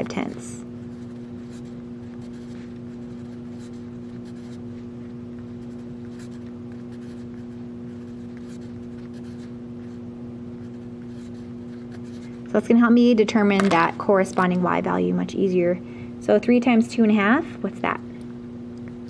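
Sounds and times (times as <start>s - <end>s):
steady low hum: 0.0s - 19.0s
pen scratching on paper: 0.9s - 4.6s, 5.6s - 10.0s.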